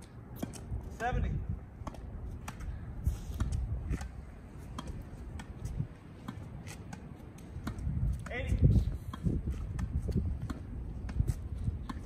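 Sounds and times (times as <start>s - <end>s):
rackets hitting tennis ball: 0.3s - 12.0s
wind rumble on microphone: 0.6s - 6.2s, 7.5s - 12.0s.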